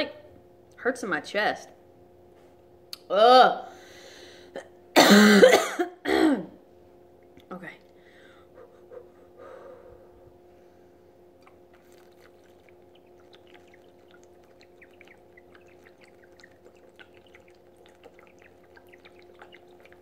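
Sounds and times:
faint hum: 0.0 - 20.0
person gulping liquid: 11.3 - 20.0.

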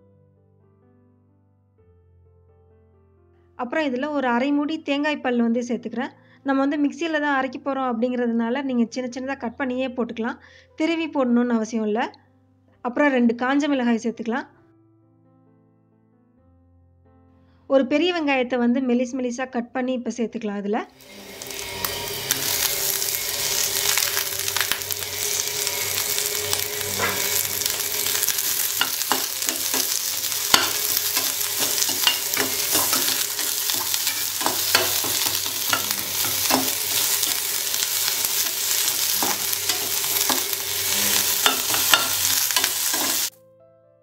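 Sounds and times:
metal spatula scraping a pan: 21.0 - 43.3
food sizzling in hot oil: 21.0 - 43.4.

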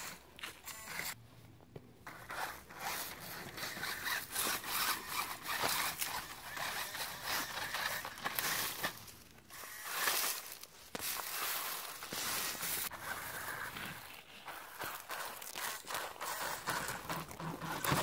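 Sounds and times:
dry leaves rustling under tyres: 4.0 - 18.0.

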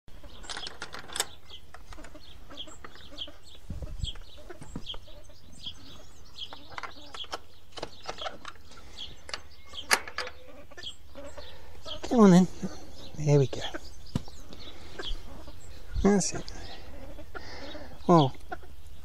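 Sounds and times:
fowl clucking: 2.0 - 7.2, 9.7 - 13.9, 14.6 - 15.7, 16.4 - 18.8.

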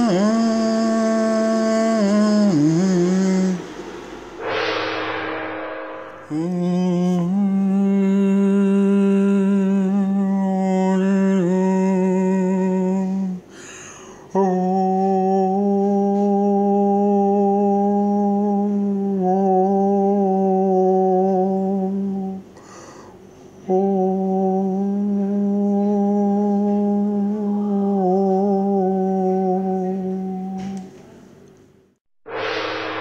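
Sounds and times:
man humming long notes: 0.0 - 3.7, 6.3 - 13.4, 14.3 - 22.5, 23.7 - 30.8.

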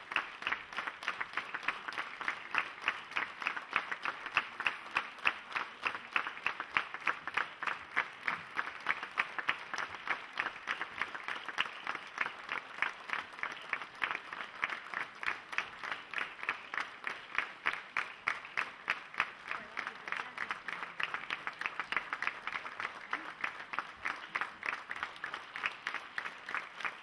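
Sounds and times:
audience clapping in rhythm: 0.0 - 27.0.

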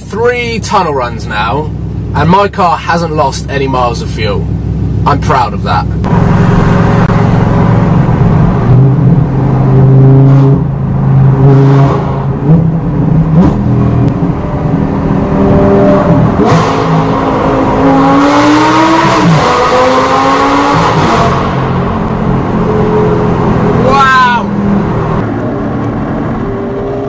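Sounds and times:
car engine revving through gears: 6.0 - 23.9, 24.5 - 27.0.

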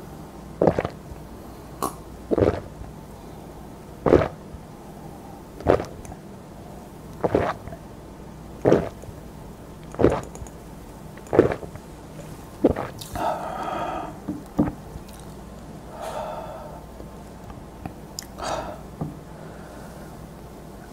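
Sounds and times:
voiced ahh breath: 4.7 - 5.6, 13.1 - 14.3, 15.9 - 16.9, 18.4 - 20.2.

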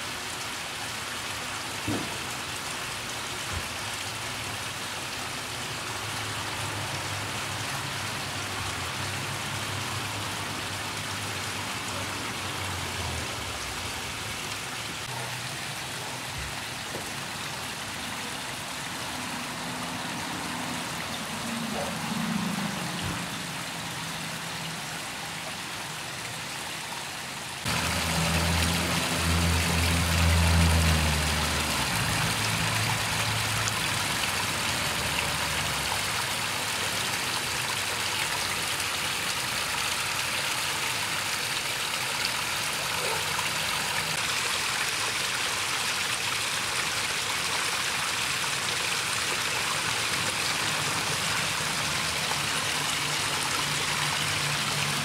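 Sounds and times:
waterfall splashing into pond: 0.0 - 55.0
low engine hum: 27.6 - 36.0.

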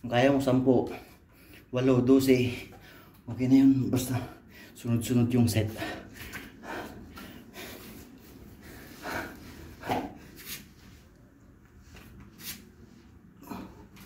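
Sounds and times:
man breathing hard: 5.7 - 10.5.

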